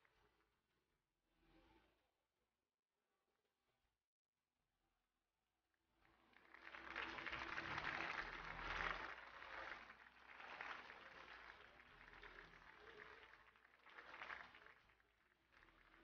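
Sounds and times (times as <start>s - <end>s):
audience applauding: 6.1s - 16.0s.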